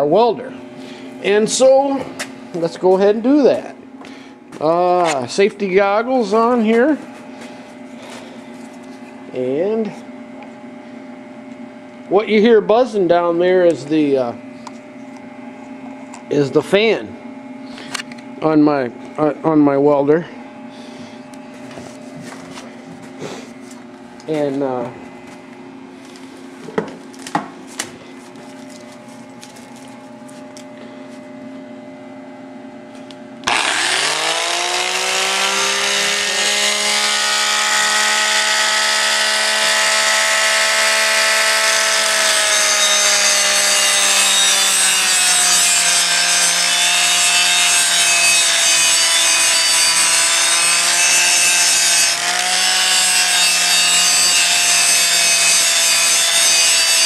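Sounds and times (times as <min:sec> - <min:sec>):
welder cooling fan humming: 0:00.0 - 0:57.0
angle grinder grinding metal: 0:33.4 - 0:57.0.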